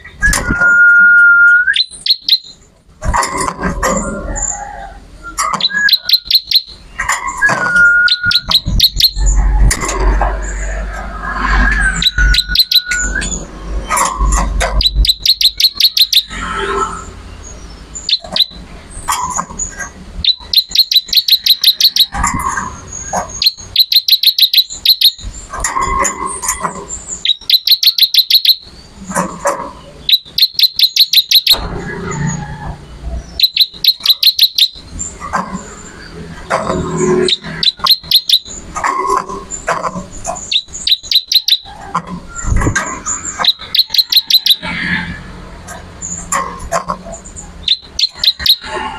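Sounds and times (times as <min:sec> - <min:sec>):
soft low bird chirps: 0:00.0 - 0:02.7, 0:03.9 - 0:32.4, 0:33.2 - 0:44.8, 0:47.6 - 0:48.8
bird rapid trills: 0:01.7 - 0:04.6, 0:05.2 - 0:32.4, 0:33.2 - 0:45.3, 0:46.0 - 0:48.9.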